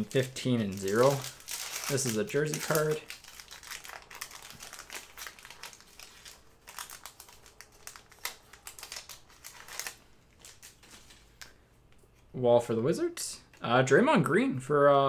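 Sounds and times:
trading cards and packaging crinkling: 0:00.0 - 0:11.6.

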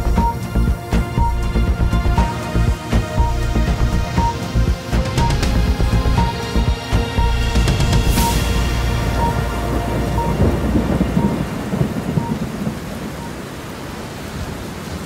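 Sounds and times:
steady rain: 0:00.0 - 0:15.0
rumbling thunder: 0:07.2 - 0:13.6
faint repeating tone: 0:08.2 - 0:13.4.

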